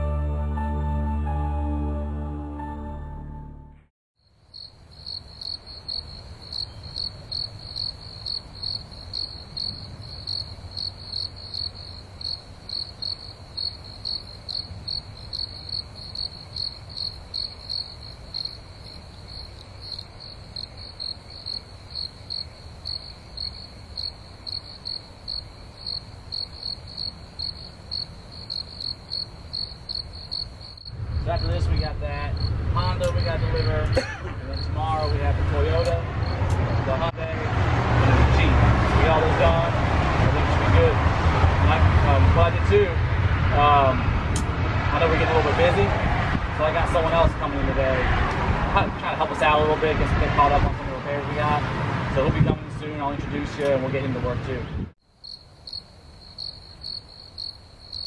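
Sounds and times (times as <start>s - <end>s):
music: 0.0s - 3.9s
crickets chirping: 4.2s - 37.2s, 55.0s - 58.0s
low rumble: 30.9s - 45.1s.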